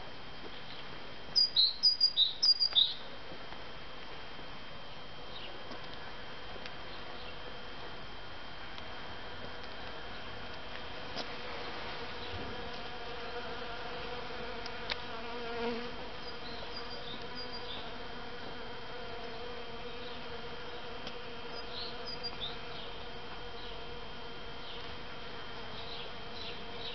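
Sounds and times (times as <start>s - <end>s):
buzzing hum: 0.0s - 26.9s
faint high chirps: 1.4s - 3.0s.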